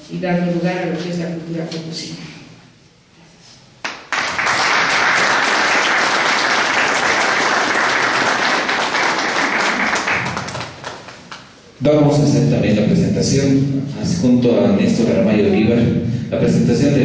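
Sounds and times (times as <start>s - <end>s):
audience applauding: 3.8s - 11.5s.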